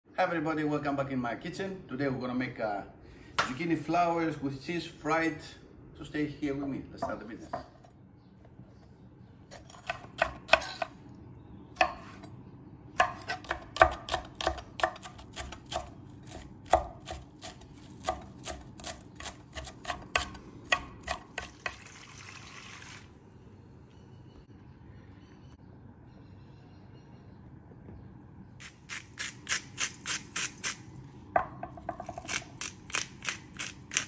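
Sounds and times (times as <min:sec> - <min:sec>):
knife chopping on wooden board: 0:09.5 - 0:11.0, 0:13.0 - 0:21.8
liquid pouring into metal bowl: 0:21.7 - 0:23.2.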